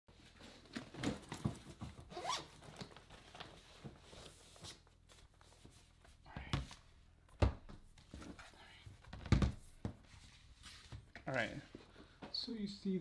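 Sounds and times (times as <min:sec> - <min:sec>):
backpack zipper opening: 0:02.1 - 0:02.5.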